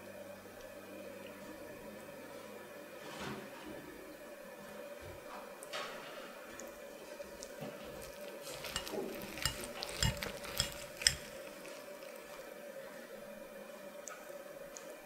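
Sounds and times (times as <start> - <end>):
faint hum: 0.0 - 5.7
cutlery clicking on a plate: 8.5 - 11.4.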